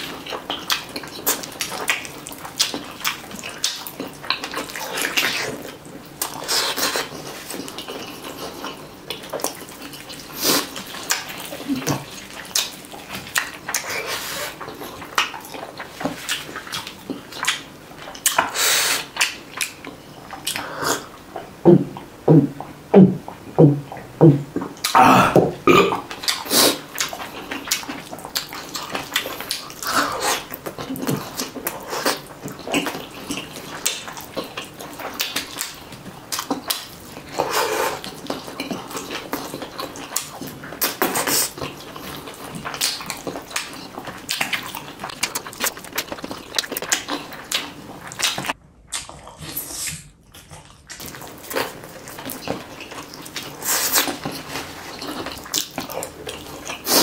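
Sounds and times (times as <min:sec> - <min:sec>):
wet chewing and lip-smacking: 0:00.0 - 0:57.0
low throat sounds: 0:20.6 - 0:26.1.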